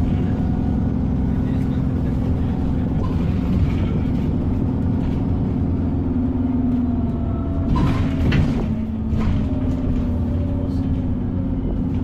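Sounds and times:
bus engine drone: 0:00.0 - 0:12.0
road rumble: 0:00.0 - 0:12.0
bodywork rattles and knocks: 0:07.6 - 0:10.4.

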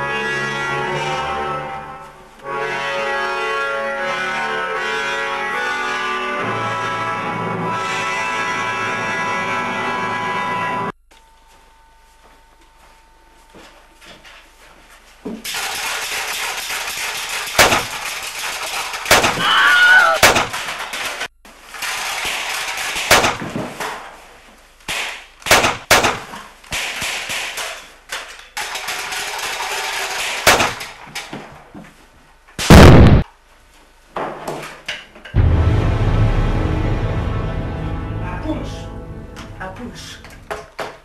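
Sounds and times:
sharp gunshots: 0:15.5 - 0:19.5, 0:20.2 - 0:23.7, 0:24.9 - 0:27.8, 0:30.0 - 0:31.0, 0:32.6 - 0:33.2.

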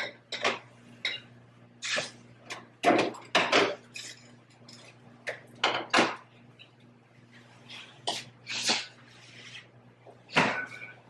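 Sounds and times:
dishes and utensils clinking: 0:00.0 - 0:01.3, 0:02.8 - 0:05.0, 0:10.3 - 0:11.0
low steady hum: 0:00.0 - 0:11.0.

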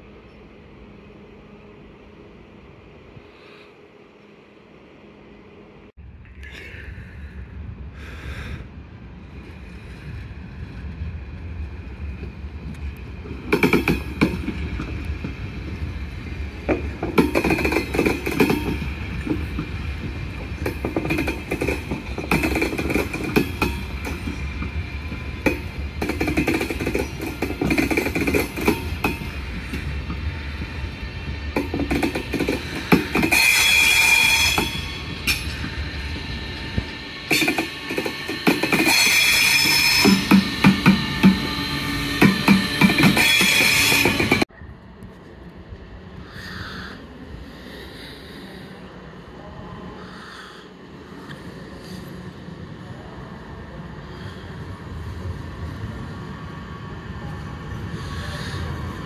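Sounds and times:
low train rumble: 0:00.0 - 0:59.0
train wheels clattering over rail joints: 0:13.2 - 0:15.5, 0:16.5 - 0:30.7, 0:31.5 - 0:44.5.

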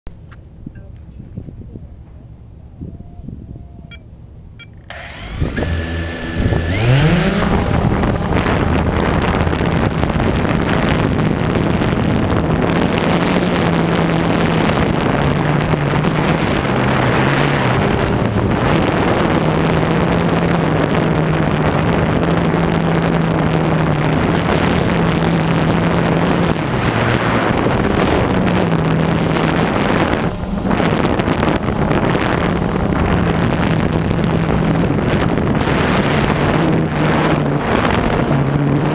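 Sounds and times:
quadcopter motors humming: 0:02.8 - 0:38.9
rushing air: 0:04.9 - 0:38.9.

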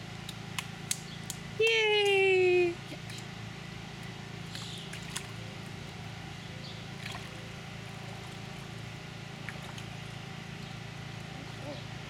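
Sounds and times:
steady low hum: 0:00.0 - 0:12.0
water sloshing and splashing: 0:04.4 - 0:06.1, 0:06.8 - 0:10.2.

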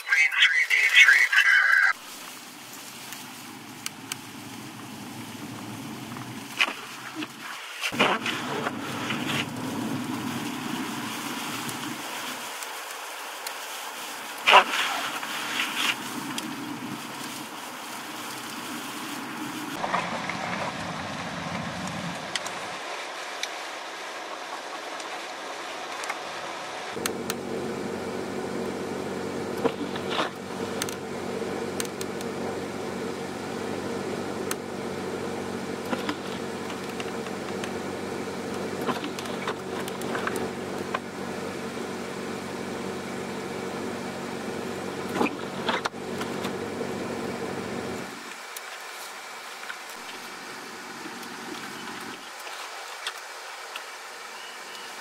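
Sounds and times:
road noise: 0:00.0 - 0:55.0
wind: 0:00.0 - 0:55.0
car engine running steadily: 0:02.0 - 0:07.4, 0:08.0 - 0:12.4, 0:14.4 - 0:22.7, 0:26.9 - 0:48.3.

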